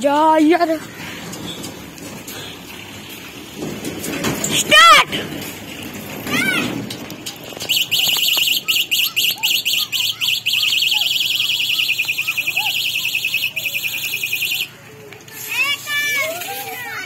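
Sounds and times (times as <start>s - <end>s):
electronic horn warbling beep: 7.7s - 14.7s.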